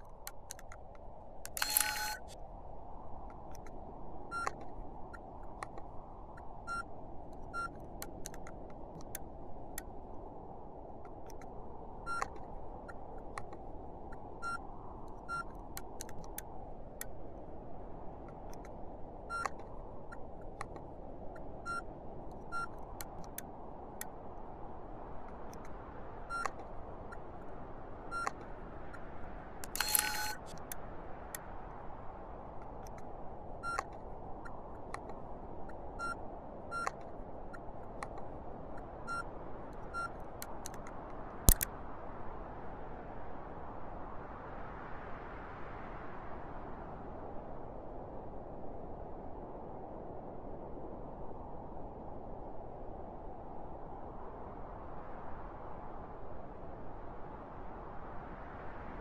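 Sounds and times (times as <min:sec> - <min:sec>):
sharp clicks: 0:00.0 - 0:02.4, 0:04.4 - 0:04.7, 0:07.4 - 0:09.2, 0:12.1 - 0:14.2, 0:15.8 - 0:17.1, 0:19.4 - 0:21.5, 0:22.3 - 0:24.1, 0:26.4 - 0:27.2, 0:29.6 - 0:30.8, 0:40.4 - 0:41.7
electronic beeps: 0:01.5 - 0:02.3, 0:04.3 - 0:04.6, 0:06.7 - 0:06.9, 0:07.5 - 0:07.7, 0:12.1 - 0:12.4, 0:15.2 - 0:15.5, 0:22.5 - 0:22.8, 0:26.3 - 0:26.6, 0:28.1 - 0:28.4, 0:29.7 - 0:30.5, 0:36.0 - 0:37.0.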